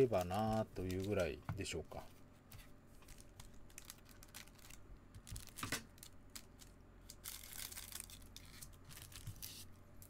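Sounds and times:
scissors cutting wrapper: 0.0 - 1.3
foil wrapper crinkling: 0.0 - 1.4, 3.0 - 9.7.

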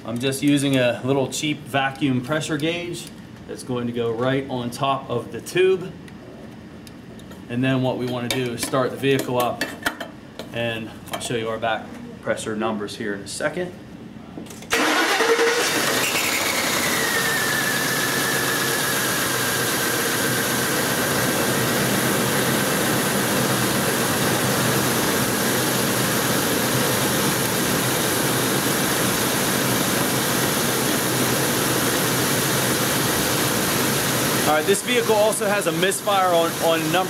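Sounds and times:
misfiring engine idling: 14.8 - 22.2.

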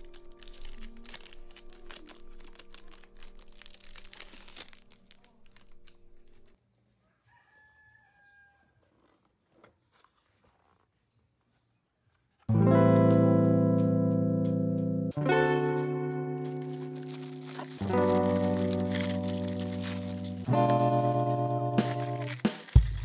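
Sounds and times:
plastic wrapping crinkling: 0.0 - 6.6, 16.4 - 23.0
distant rooster crowing: 6.9 - 9.1.

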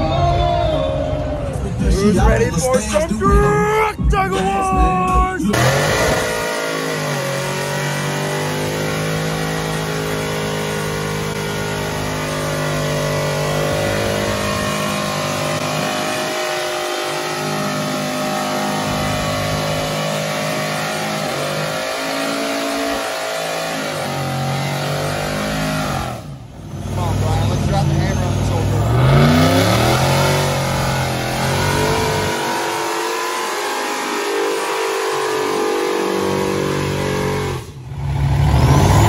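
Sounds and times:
truck engine at high revs: 5.4 - 39.0.

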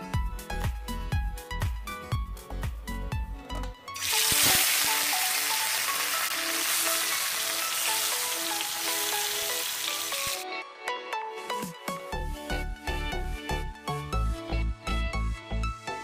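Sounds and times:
background melody music: 0.0 - 16.0
fish sizzling in hot oil: 4.0 - 10.4.

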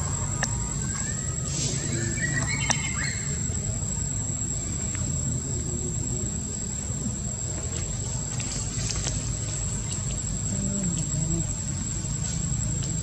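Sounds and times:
insect high-pitched calling: 0.0 - 13.0.

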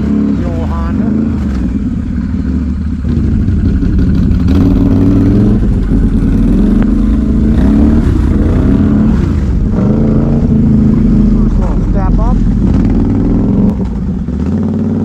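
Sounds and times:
atv engine revving: 0.0 - 15.0.

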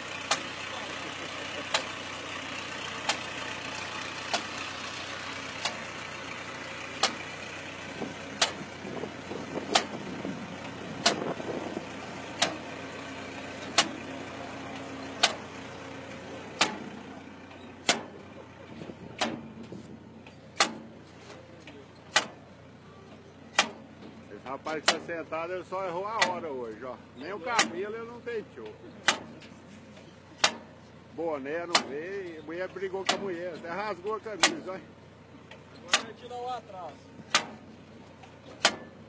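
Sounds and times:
tractor engine running: 0.0 - 39.0
planting wheel clicking: 10.9 - 11.6.

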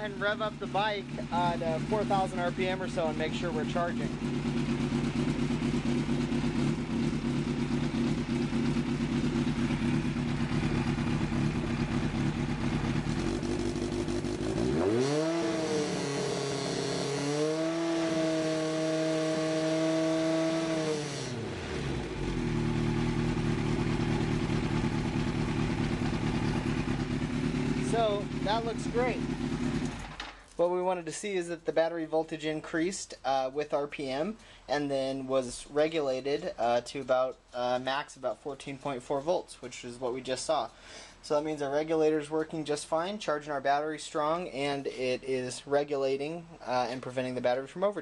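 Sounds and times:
motorcycle engine idling and revving: 0.0 - 30.4.

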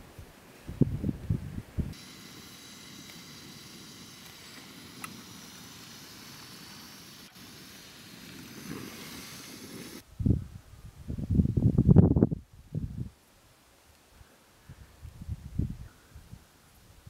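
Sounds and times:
camping stove burner hissing: 1.9 - 10.0
faint click: 4.2 - 5.3.

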